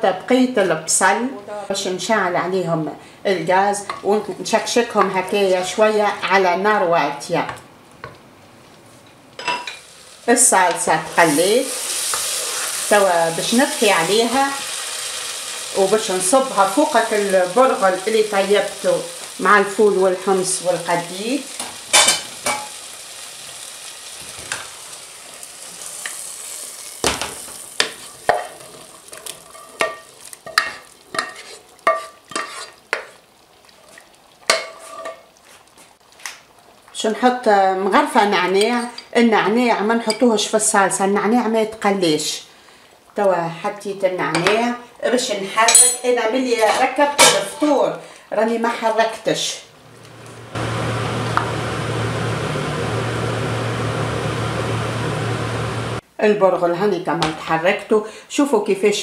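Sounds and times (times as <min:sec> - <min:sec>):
light sizzle: 0:07.8 - 0:56.0
fan humming and whirring: 0:49.7 - 0:56.0.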